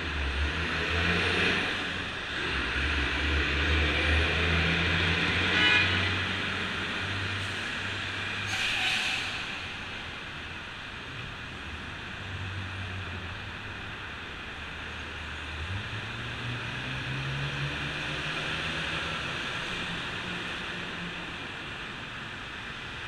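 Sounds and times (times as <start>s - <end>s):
hiss of passing vehicles: 6.3s - 12.1s.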